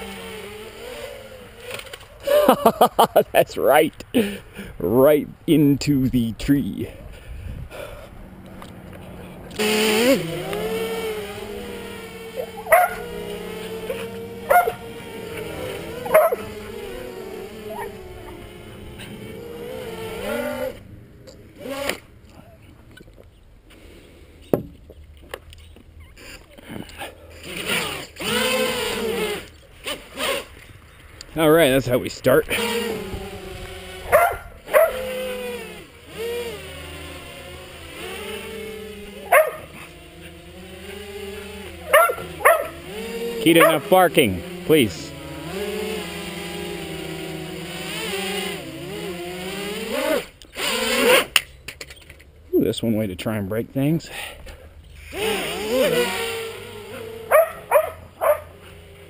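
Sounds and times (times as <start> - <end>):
quadcopter motors humming: 0.0 - 59.0
dog barking: 12.6 - 13.0, 14.5 - 14.8, 16.0 - 16.4, 34.1 - 35.0, 39.3 - 39.7, 41.9 - 42.7, 57.3 - 58.5.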